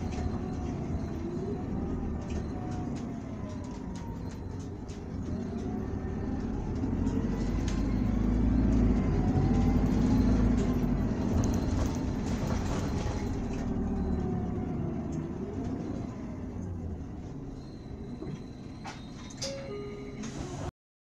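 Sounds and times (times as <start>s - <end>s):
bus diesel engine: 0.0s - 20.7s.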